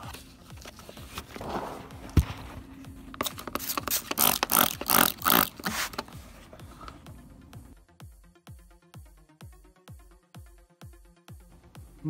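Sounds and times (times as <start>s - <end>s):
spray bottle squirting: 3.3s - 6.1s.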